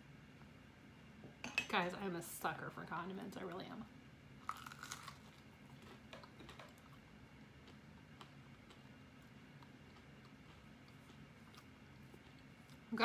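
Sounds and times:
crunch of a bite: 0:04.4 - 0:06.0
faint chewing clicks: 0:04.5 - 0:12.9.

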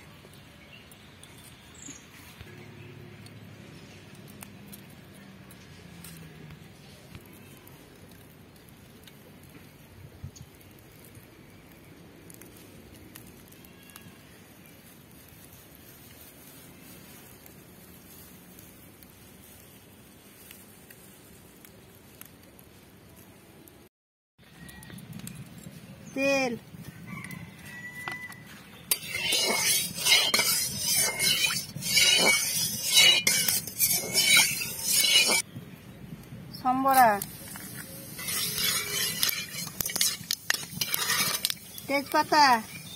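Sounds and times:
metal spatula scraping pan: 0:28.9 - 0:35.4, 0:38.0 - 0:42.9.

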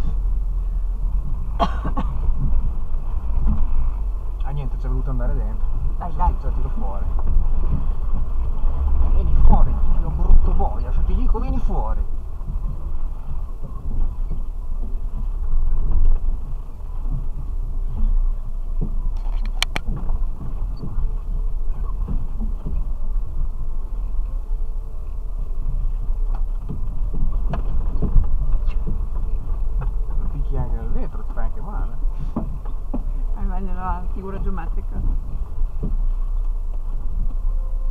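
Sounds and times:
vehicle body knocking and rattling: 0:00.0 - 0:37.9
vehicle engine low rumble: 0:00.0 - 0:37.9
sharp clicks: 0:19.2 - 0:19.9.

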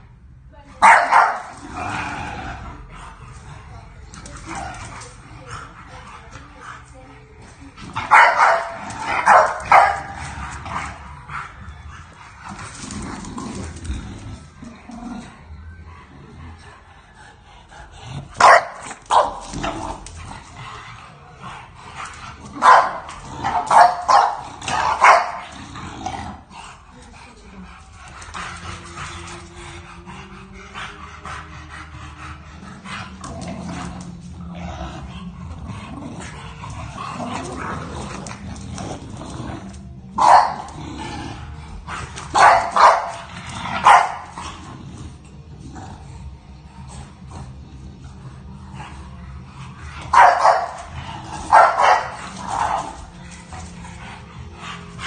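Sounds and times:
dogs barking: 0:00.8 - 0:01.6, 0:07.9 - 0:12.2, 0:18.4 - 0:20.2, 0:21.9 - 0:25.6, 0:40.1 - 0:40.8, 0:41.9 - 0:44.5, 0:49.9 - 0:53.2.

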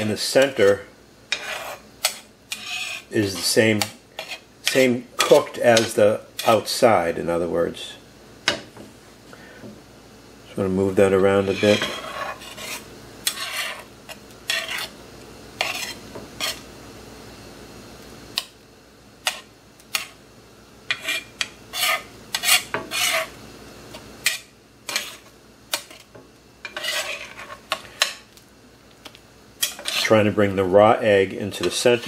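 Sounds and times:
metal spatula scraping skillet: 0:00.0 - 0:03.6, 0:04.2 - 0:06.7, 0:11.3 - 0:15.0, 0:15.6 - 0:16.6, 0:20.9 - 0:23.4, 0:24.2 - 0:28.1, 0:29.6 - 0:30.3.

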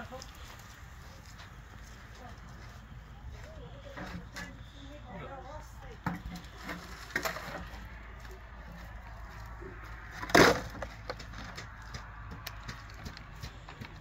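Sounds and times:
crash of hard objects: 0:10.2 - 0:11.2.

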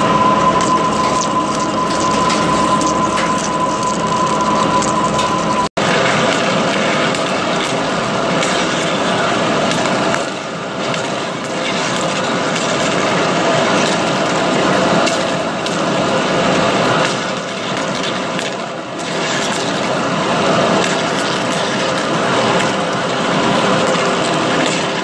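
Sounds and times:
metal cutting tool: 0:00.0 - 0:25.0
coolant splashing: 0:00.6 - 0:25.0.

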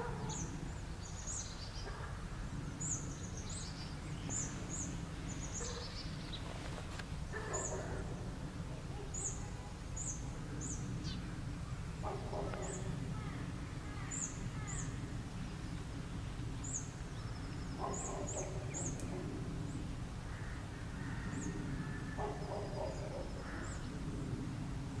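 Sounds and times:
harsh low bird calls: 0:16.6 - 0:24.0.

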